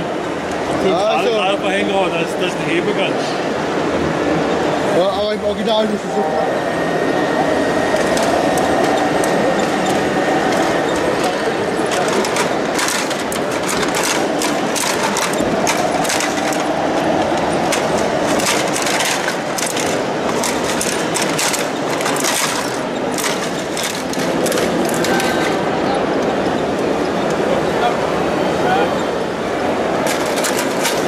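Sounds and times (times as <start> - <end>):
shredder crunching plastic: 8.0 - 25.6.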